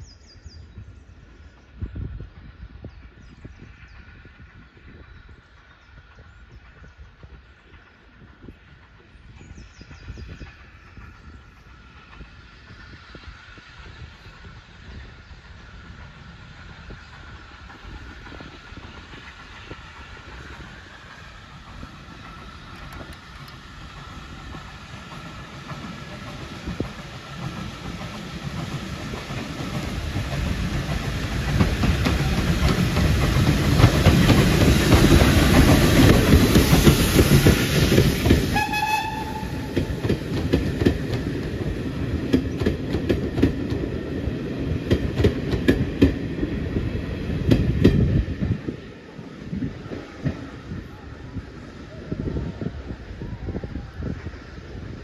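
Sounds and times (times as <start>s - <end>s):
steam locomotive passing: 0.0s - 55.0s
high train whistle: 38.5s - 40.0s.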